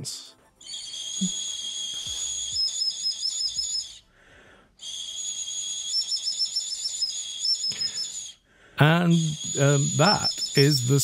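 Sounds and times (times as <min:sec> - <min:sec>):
bone flute whistling and trilling: 0:00.6 - 0:04.1, 0:04.8 - 0:08.4, 0:09.0 - 0:11.0.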